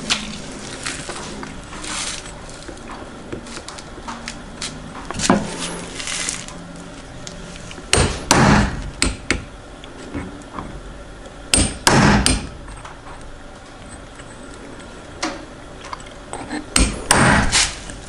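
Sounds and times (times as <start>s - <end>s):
hammer striking metal: 7.9s - 9.5s, 11.5s - 12.5s, 16.7s - 17.6s.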